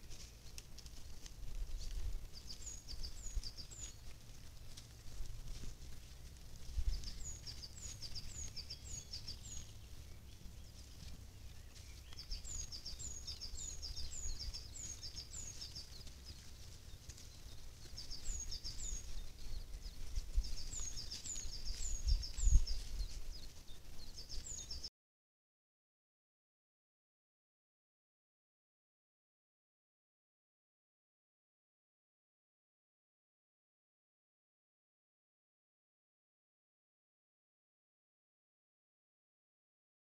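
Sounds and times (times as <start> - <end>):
low outdoor rumble: 0.0 - 24.8
songbird chirping: 0.0 - 24.9.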